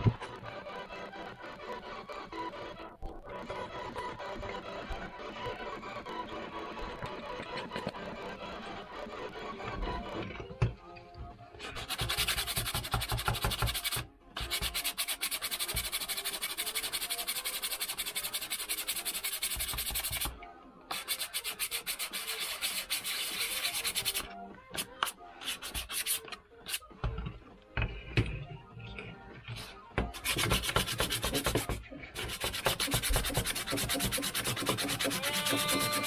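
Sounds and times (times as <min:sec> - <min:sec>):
sandpaper sanding wood: 0:11.7 - 0:20.3, 0:20.9 - 0:26.8, 0:30.2 - 0:36.0.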